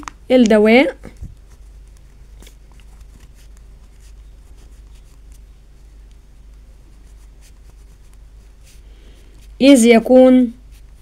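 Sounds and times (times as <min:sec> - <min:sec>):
low steady hum: 0:00.0 - 0:11.0
pen scratching on paper: 0:01.4 - 0:05.4, 0:06.9 - 0:08.8.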